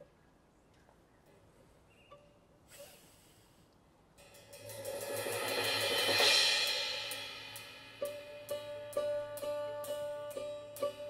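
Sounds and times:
cymbal swell: 4.2 - 11.0
plucked string notes: 8.0 - 11.0.

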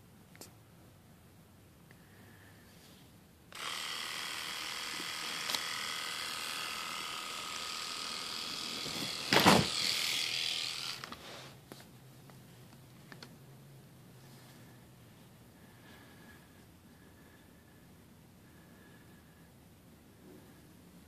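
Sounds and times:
electric shaver buzzing: 3.5 - 11.4.

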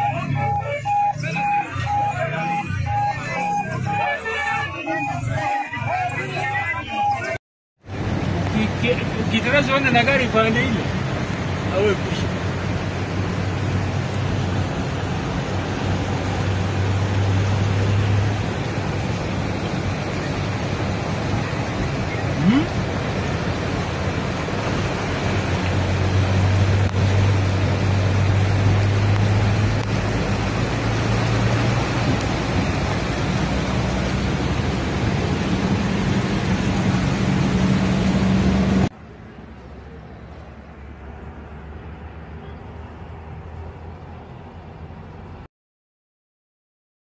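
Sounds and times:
rush of water: 0.0 - 39.0
low vehicle hum: 7.9 - 45.4.

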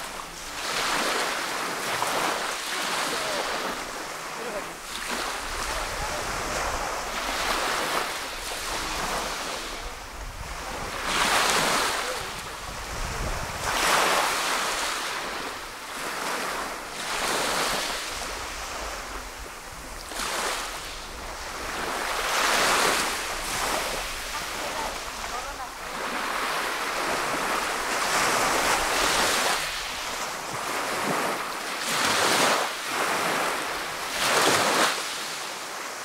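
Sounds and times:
waves washing on pebble beach: 0.0 - 36.0
wind rumble on microphone: 8.3 - 14.6.

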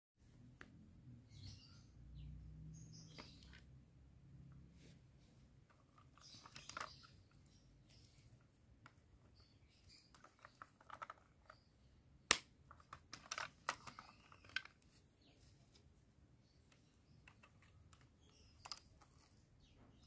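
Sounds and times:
plastic toy parts clicking: 5.8 - 7.2, 8.8 - 11.7, 12.3 - 14.8, 16.7 - 19.3.

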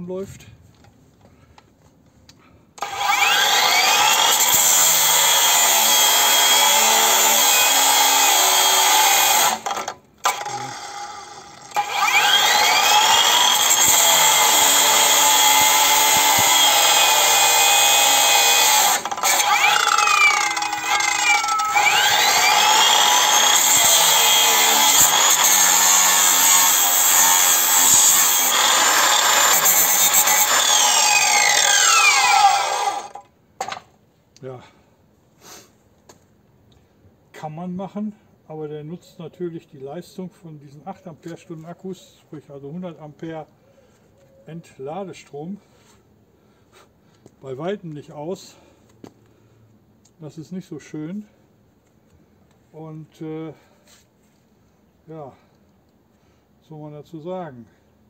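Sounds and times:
angle grinder cutting steel: 2.8 - 33.2.

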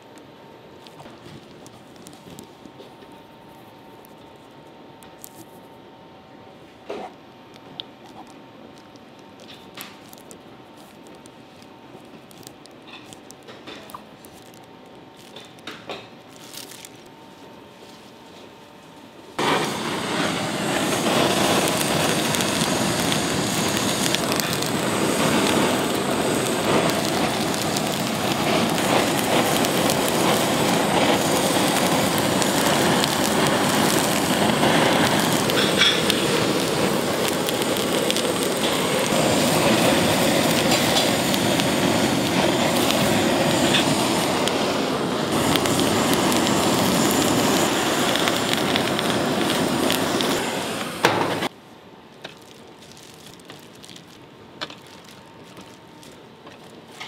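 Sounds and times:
butane torches flame roaring: 6.8 - 17.2, 19.3 - 51.6.

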